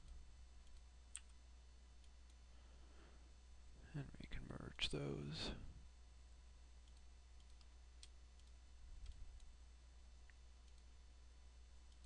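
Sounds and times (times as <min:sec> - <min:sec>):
computer mouse clicks: 0:00.0 - 0:01.4, 0:06.8 - 0:09.6, 0:10.2 - 0:10.9
low steady hum: 0:00.0 - 0:12.0.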